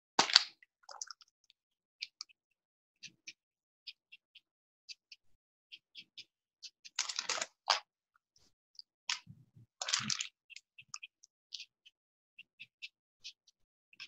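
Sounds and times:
marker handling rustles and clicks: 6.9 - 7.7.

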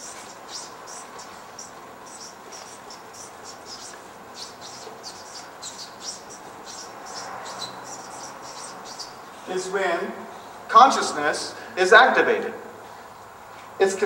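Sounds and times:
marker squeaking on paper: 0.0 - 9.5.

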